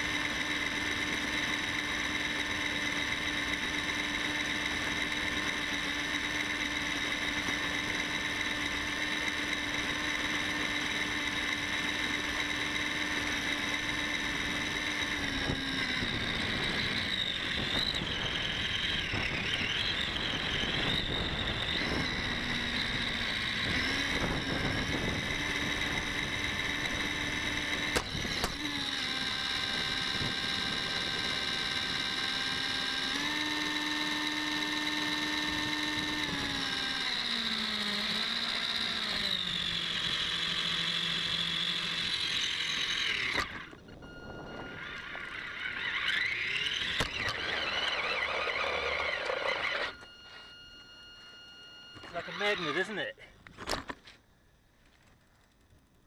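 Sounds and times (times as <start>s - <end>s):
electric motor whining: 0.0s - 54.0s
tyres on gravel: 33.1s - 56.0s.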